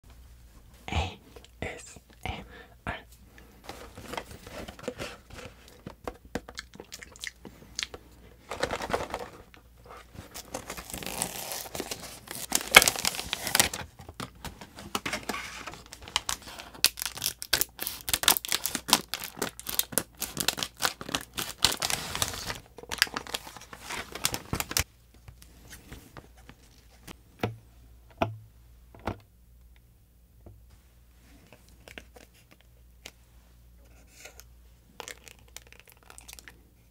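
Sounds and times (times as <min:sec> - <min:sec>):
packaging tearing and crinkling: 0:10.3 - 0:14.3, 0:15.2 - 0:24.8, 0:35.0 - 0:36.5
scissors cutting plastic packets: 0:15.9 - 0:23.4.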